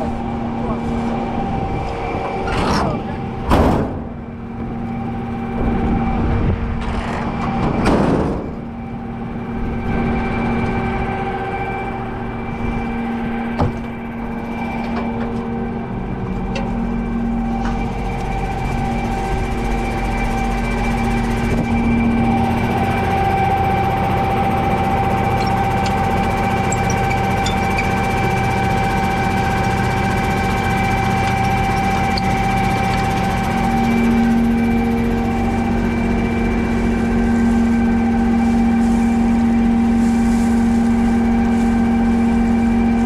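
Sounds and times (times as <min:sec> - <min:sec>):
farm vehicle engine running: 0:00.0 - 0:43.0.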